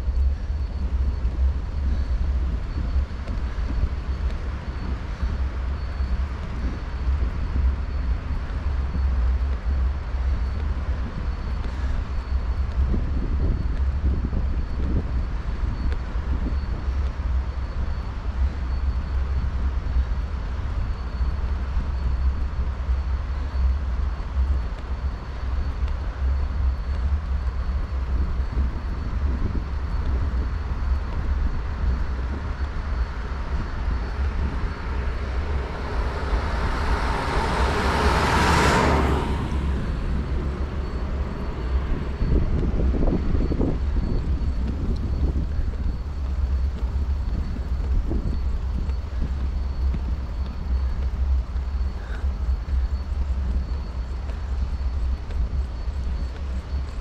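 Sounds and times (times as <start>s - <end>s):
wind rumble on microphone: 0.0s - 57.0s
motor vehicle passing: 31.9s - 57.0s.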